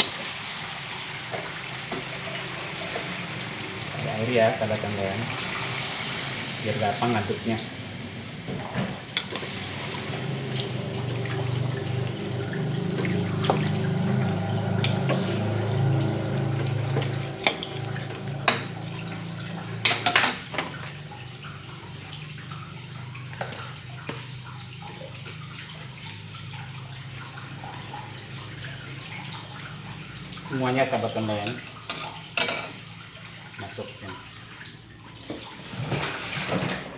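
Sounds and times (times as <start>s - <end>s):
liquid sloshing in a wok: 7.7s - 36.9s.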